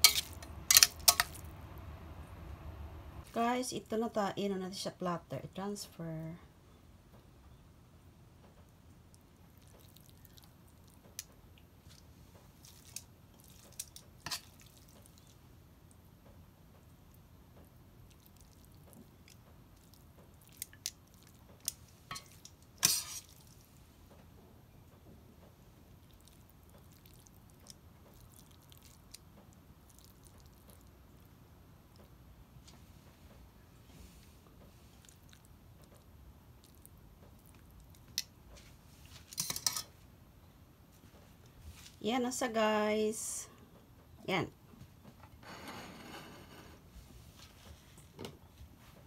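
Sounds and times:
wet squishes of pasta: 8.7 - 16.1, 16.8 - 23.8, 25.9 - 32.2, 34.2 - 39.9.

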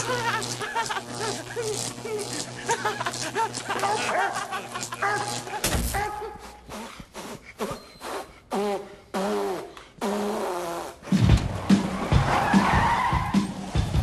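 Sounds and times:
music with heavy drum beat: 11.1 - 14.0.

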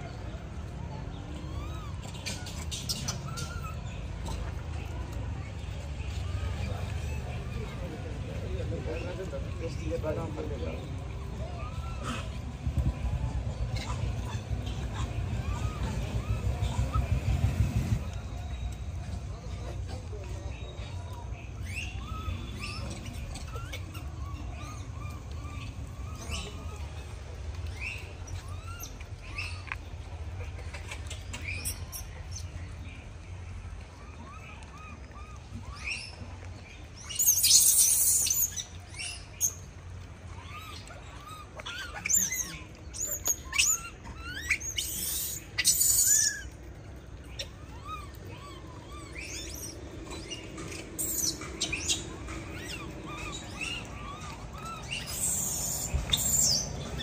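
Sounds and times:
small birds chirping: 0.0 - 57.0
low rumble: 12.4 - 19.4.

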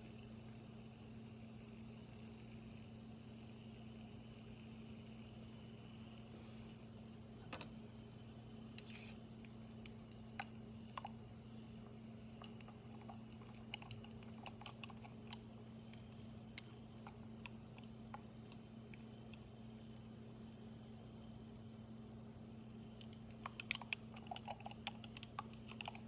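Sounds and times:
low electrical hum: 0.0 - 26.0
faint clicks and ticks: 12.4 - 19.5, 22.9 - 26.0.

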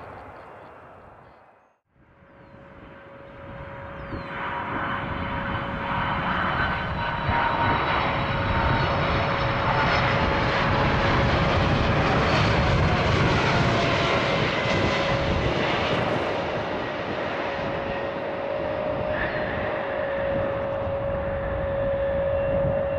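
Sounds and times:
jet airliner flying past: 0.0 - 22.9.

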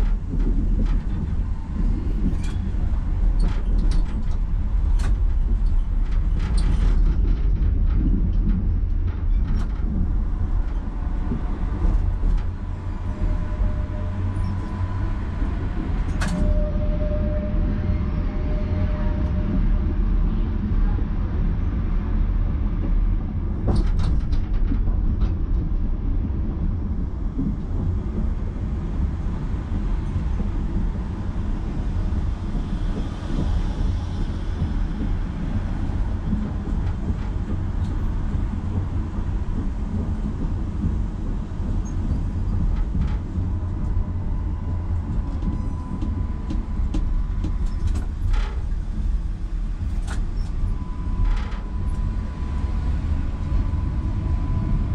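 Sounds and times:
tram rumbling on track: 0.0 - 54.9
faint steady whine: 26.6 - 54.9.

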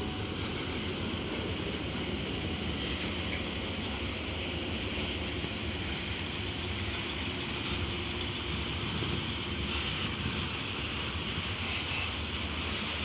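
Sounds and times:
freight train wheels rumbling: 0.0 - 13.0.

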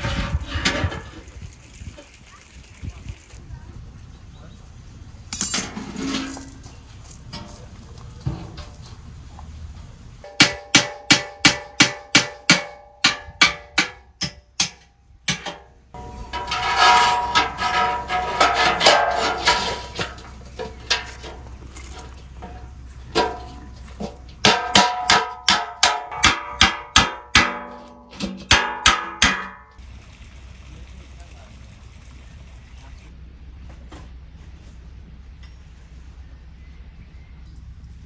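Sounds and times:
metal rods clattering in bucket: 5.4 - 7.5, 14.6 - 29.8
hammer striking steel bucket: 10.3 - 29.8.

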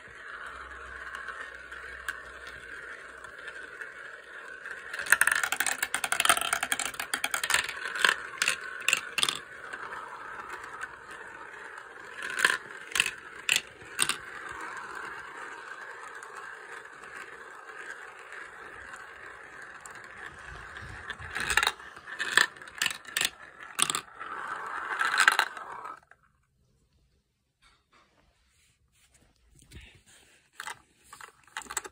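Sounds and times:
marbles clicking together: 0.0 - 26.2, 31.5 - 31.9
marbles rolling whirr: 0.0 - 26.5, 30.5 - 31.9.

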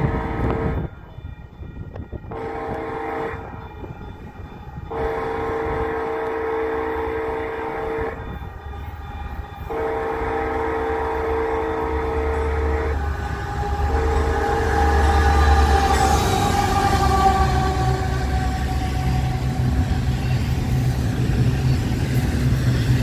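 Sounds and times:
locomotive air horn blasts: 0.0 - 1.0, 2.2 - 3.6, 4.8 - 20.5
train low rumble: 0.0 - 23.0.

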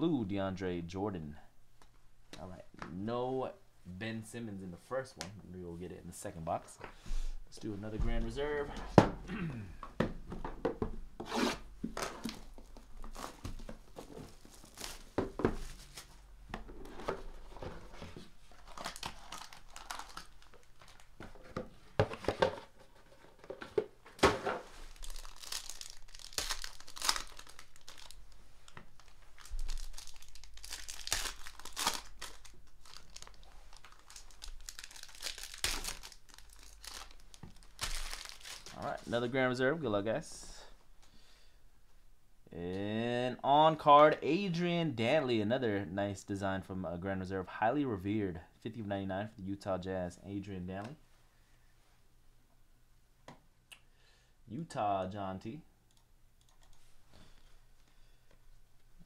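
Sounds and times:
foil wrapper tearing and crinkling: 18.6 - 21.1, 24.9 - 38.8.

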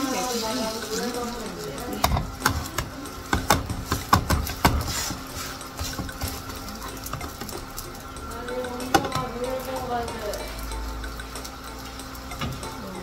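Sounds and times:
wooden spatula scraping frying pan: 0.0 - 7.7.

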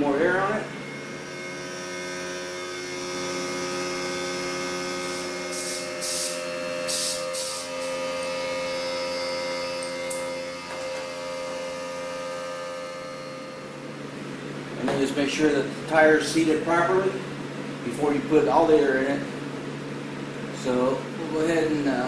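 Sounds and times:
air compressor humming: 0.0 - 22.0
short air hisses: 5.5 - 7.7.

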